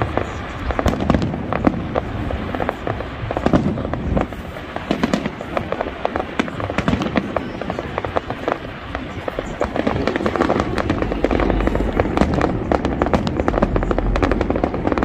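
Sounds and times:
fireworks bangs and crackles: 0.0s - 15.0s
steady rumble: 8.9s - 15.0s.

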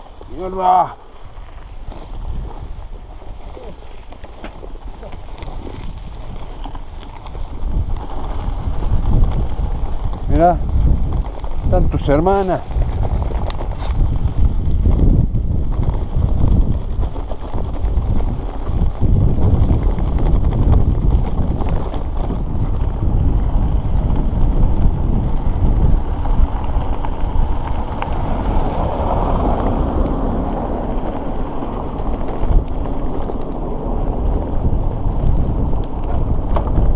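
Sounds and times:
bicycle rolling on dirt road: 0.0s - 36.9s
wind buffeting microphone: 0.0s - 36.9s
car passing: 23.4s - 36.9s.

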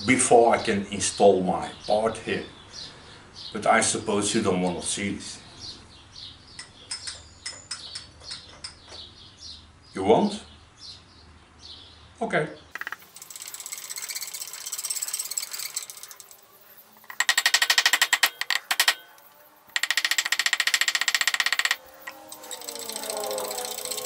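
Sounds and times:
rapid mechanical clattering: 12.8s - 24.0s
soft steady machine noise: 12.8s - 24.0s.

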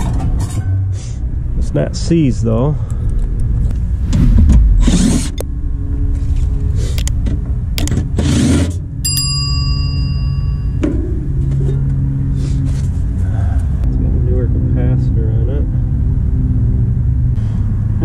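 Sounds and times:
steady low hum: 1.2s - 8.2s
bell-like chime: 9.0s - 10.8s.

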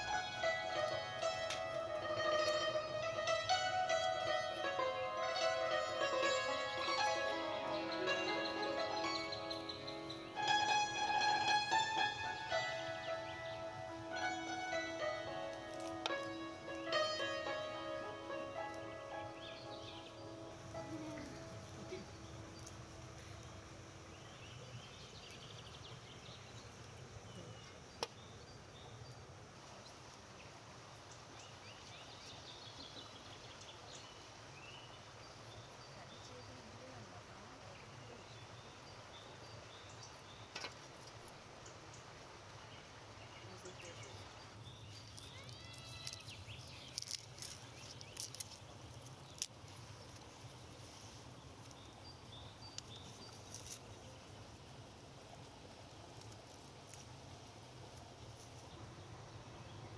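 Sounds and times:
birds chirping: 0.0s - 29.2s, 42.7s - 59.9s.

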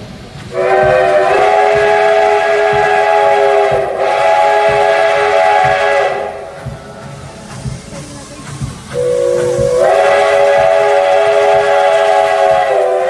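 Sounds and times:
steam locomotive whistle: 0.5s - 6.6s, 8.9s - 13.0s.

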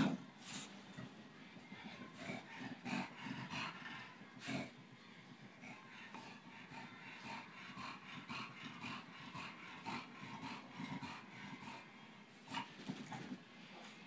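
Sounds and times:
dog breathing rapidly: 1.6s - 4.8s, 5.4s - 12.0s.

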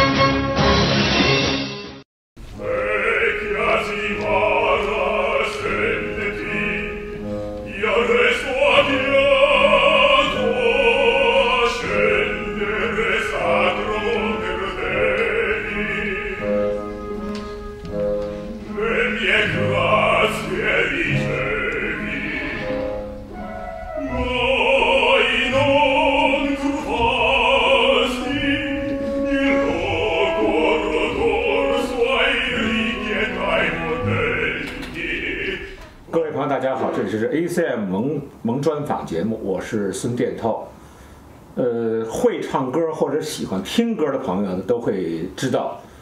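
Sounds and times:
opera singing with orchestra: 2.4s - 37.2s.

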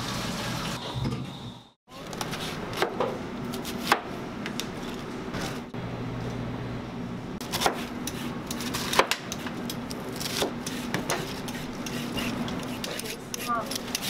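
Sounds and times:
knife chopping lettuce on board: 7.4s - 9.3s, 10.2s - 14.0s.

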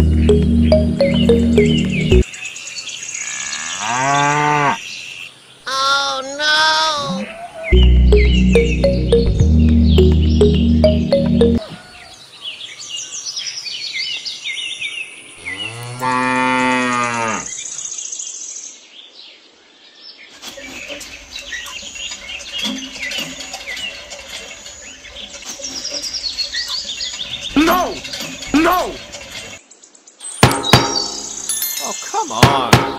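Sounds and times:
birds chirping: 0.0s - 32.9s
cow mooing: 3.2s - 4.8s, 15.5s - 17.5s.

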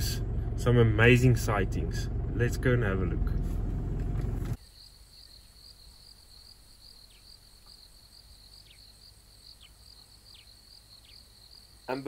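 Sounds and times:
crickets trilling: 4.6s - 12.0s.

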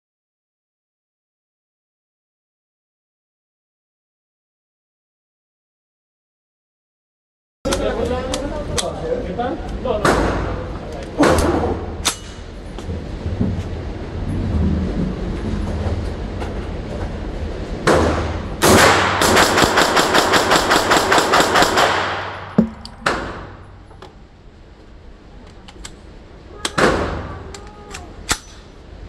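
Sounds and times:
pistol shots echoing indoors: 17.9s - 23.7s.

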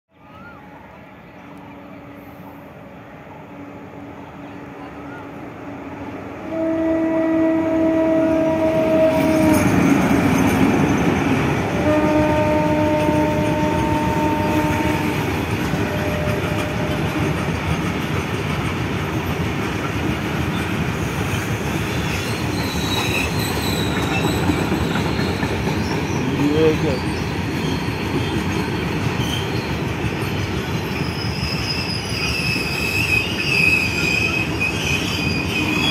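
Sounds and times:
locomotive horn blasts: 6.4s - 9.8s, 11.8s - 17.2s
freight wagons rolling past: 9.2s - 35.9s
faint wheel squeal: 21.9s - 26.2s, 30.9s - 35.9s.

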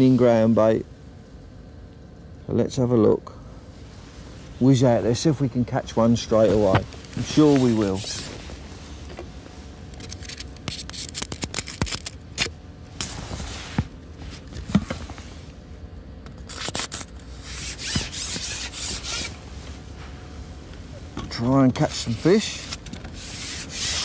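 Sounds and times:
fishing pole scraping and rubbing: 7.3s - 8.5s, 16.5s - 19.4s, 22.1s - 24.0s.

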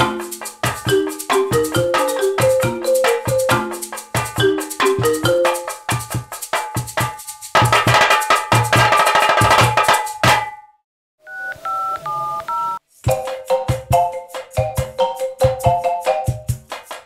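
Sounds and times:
electronic ringtone melody: 0.0s - 5.8s
percussion groove with marimba: 0.0s - 10.6s, 12.9s - 17.0s.

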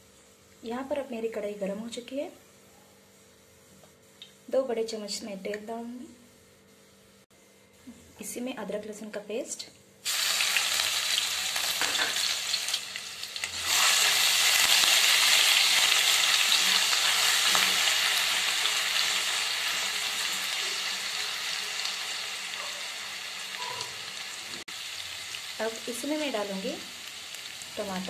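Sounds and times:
paste sizzling in hot oil: 10.0s - 28.0s.

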